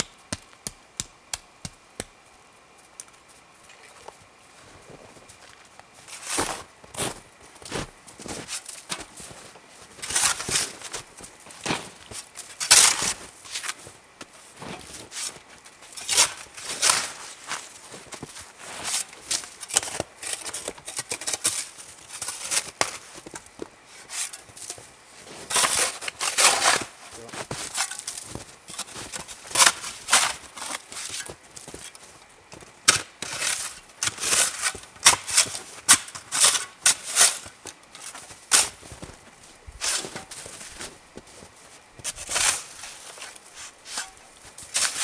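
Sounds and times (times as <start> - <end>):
hatchet chopping wood: 0.0 - 2.2
boots crunching through snow: 4.6 - 15.6, 16.2 - 19.5, 23.9 - 35.9, 37.0 - 45.0.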